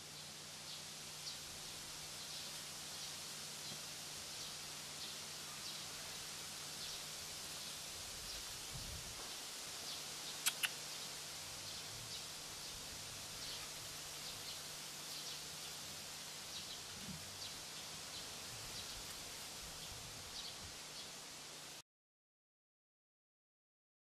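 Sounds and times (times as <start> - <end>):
steady background hiss: 0.0 - 21.8
faint high chirps: 10.3 - 10.8
sharp clicks: 10.4 - 10.8.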